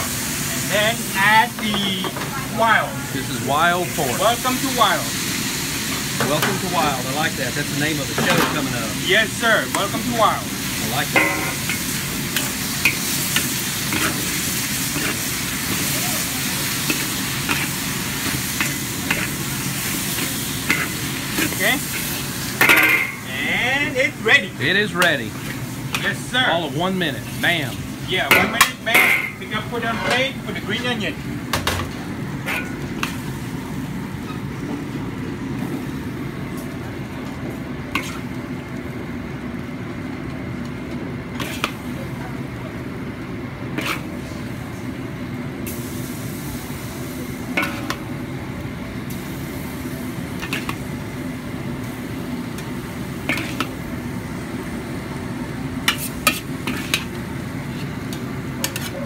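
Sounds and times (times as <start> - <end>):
meat sizzling in a pan: 0.0 - 29.5, 45.6 - 58.9
kitchen cooking rumble: 0.0 - 59.0
utensils clinking against dishes: 11.0 - 14.2, 20.2 - 22.0, 22.6 - 23.2, 28.2 - 30.4, 31.6 - 33.2.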